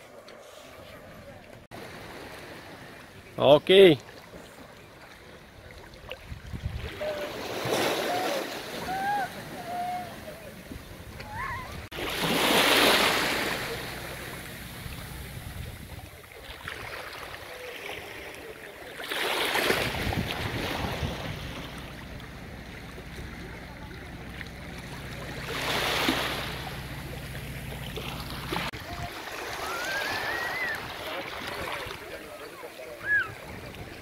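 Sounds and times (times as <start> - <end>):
small waves washing onto shore: 0.0 - 34.0
low steady rumble: 21.1 - 28.7.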